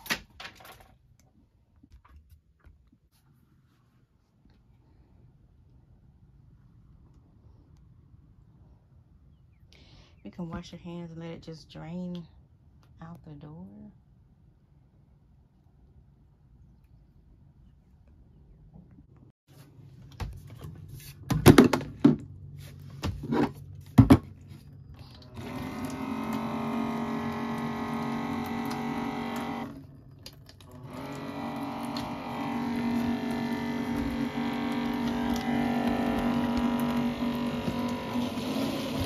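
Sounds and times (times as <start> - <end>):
small pump motor humming: 25.0 - 39.0
pump clunks: 25.2 - 39.0.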